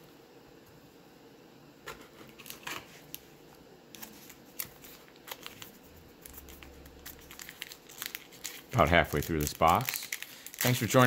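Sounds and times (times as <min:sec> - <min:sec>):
card pack wrapper crinkling: 0:04.0 - 0:11.0.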